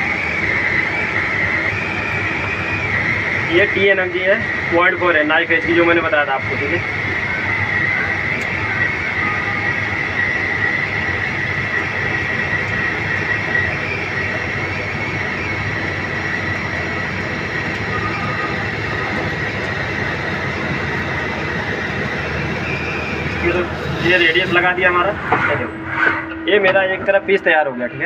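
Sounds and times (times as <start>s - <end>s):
constant high whine: 0.0s - 28.0s
lathe cutting metal: 15.3s - 27.2s.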